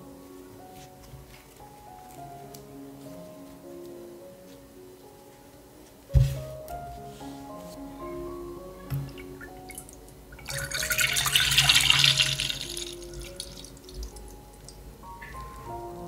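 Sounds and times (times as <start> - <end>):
light background music: 0.0 - 16.0
milk pouring into metal pot: 10.5 - 13.7.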